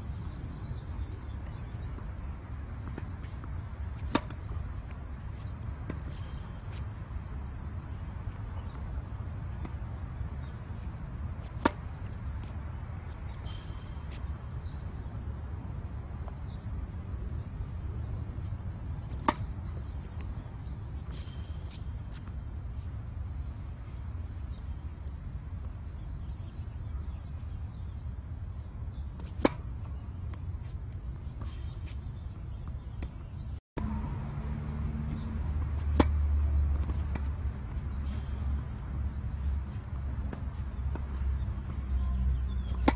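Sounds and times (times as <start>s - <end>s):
tennis racket hitting ball: 2.9s - 4.5s, 11.4s - 12.6s, 19.1s - 19.5s, 35.6s - 37.8s, 42.6s - 42.9s
tennis racket striking ball: 11.4s - 11.9s, 42.6s - 42.9s.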